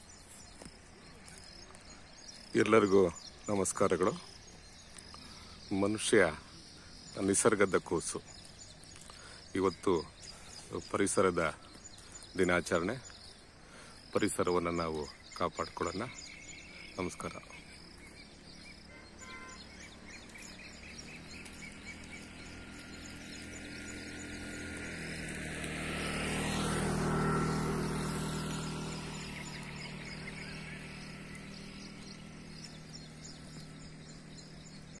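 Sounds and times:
birds chirping: 0.0 - 35.0
vehicle passing: 16.0 - 35.0.

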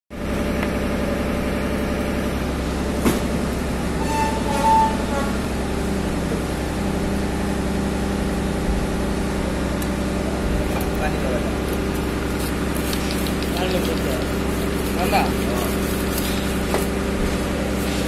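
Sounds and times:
vehicle engine idling: 0.2 - 4.0, 4.7 - 18.0
brief high tone: 4.0 - 5.5.

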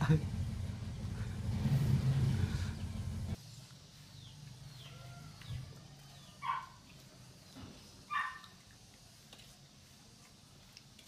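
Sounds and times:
dog barking: 6.4 - 6.8, 8.1 - 8.5.

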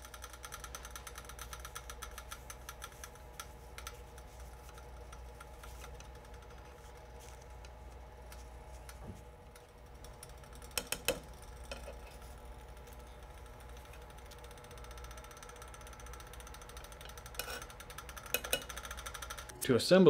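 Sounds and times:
faint steady hum: 0.0 - 20.0.

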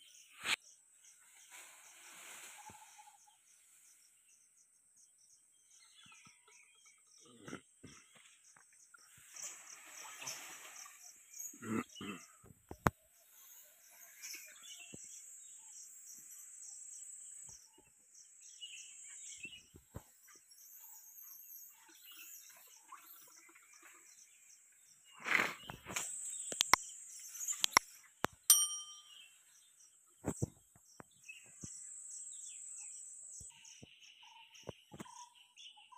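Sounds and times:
leaves and branches rustling: 1.3 - 3.2.

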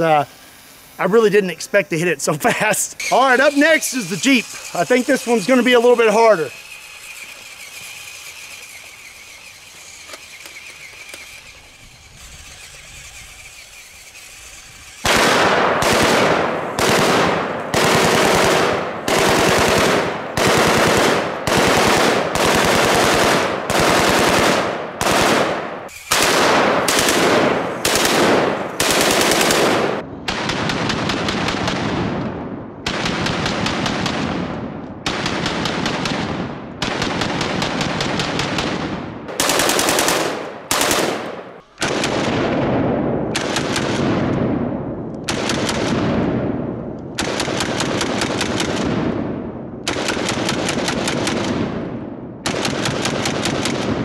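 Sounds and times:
automatic rifle bursts: 15.0 - 30.0, 39.3 - 42.2.

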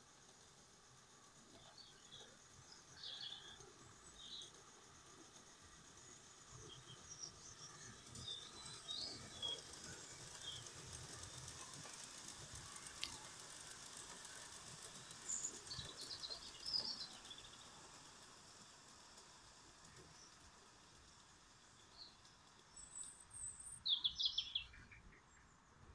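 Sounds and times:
model steam train running past: 0.0 - 25.9
small birds chirping: 6.6 - 18.1, 21.6 - 25.6.

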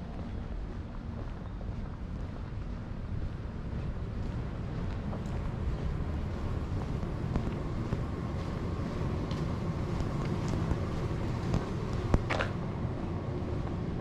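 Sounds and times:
distant traffic: 0.0 - 14.0
wind: 0.0 - 14.0.

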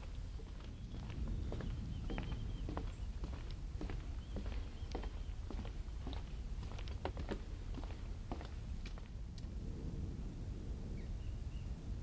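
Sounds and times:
footsteps on wooden boards: 0.0 - 9.5
low steady rumble: 0.0 - 12.0.

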